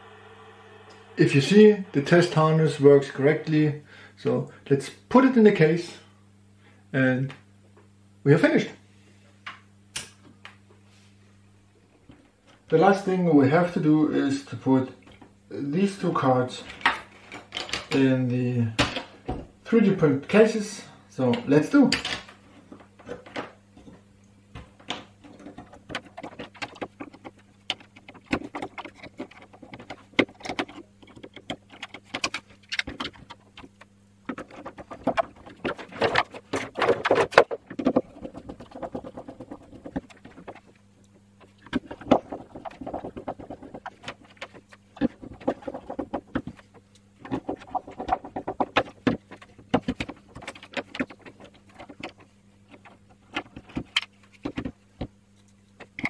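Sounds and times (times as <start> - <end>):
faint low hum: 0.0 - 56.0
plastic parts clicking and tapping: 24.6 - 56.0.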